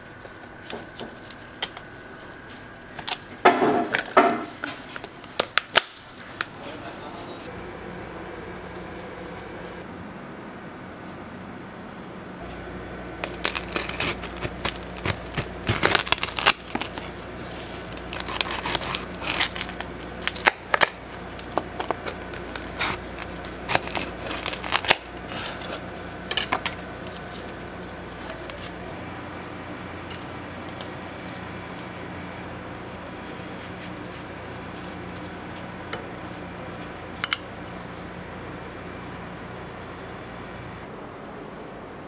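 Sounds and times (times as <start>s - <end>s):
knife cracking candy shell: 17.9s - 25.3s.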